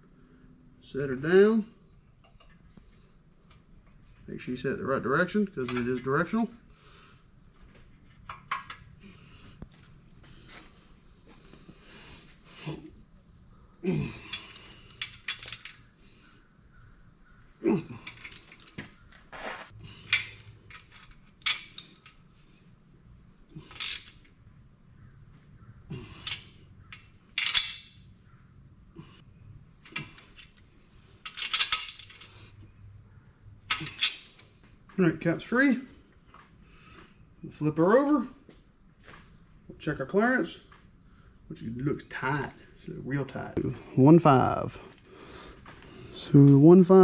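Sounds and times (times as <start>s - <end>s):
wrench clicking on metal bolts: 26.2s - 27.9s.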